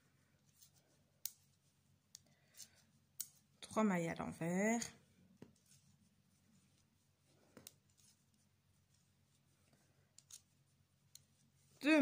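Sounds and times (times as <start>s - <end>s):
knitting needles clicking: 0.5s - 1.5s, 2.1s - 3.5s, 10.1s - 11.3s.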